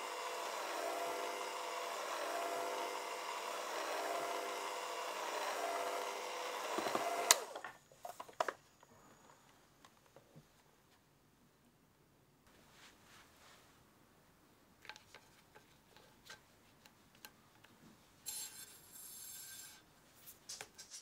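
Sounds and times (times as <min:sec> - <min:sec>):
electric hand mixer whining: 0:00.0 - 0:07.6.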